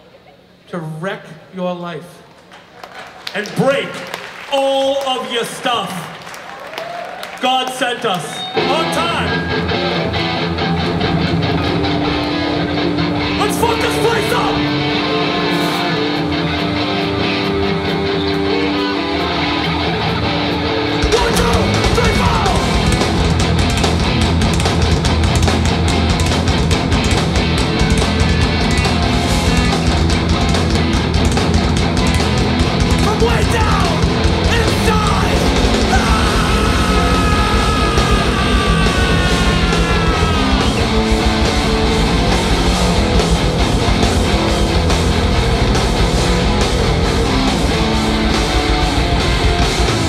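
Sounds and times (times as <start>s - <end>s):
hardcore punk band playing: 8.4s - 50.0s
drums crashing: 20.9s - 50.0s.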